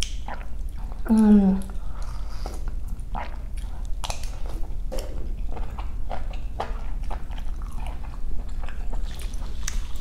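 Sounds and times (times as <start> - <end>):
wet sipping and chewing: 0.0 - 10.0.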